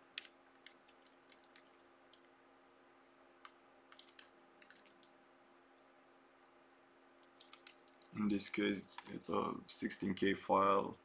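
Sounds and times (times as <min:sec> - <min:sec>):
faint computer clicks: 0:00.0 - 0:02.3, 0:03.4 - 0:05.3, 0:07.2 - 0:08.2
low steady hum: 0:00.0 - 0:11.0.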